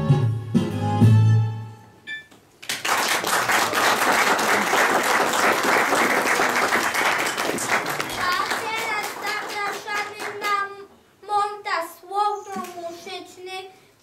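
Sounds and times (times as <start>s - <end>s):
audience applause: 2.6s - 10.6s.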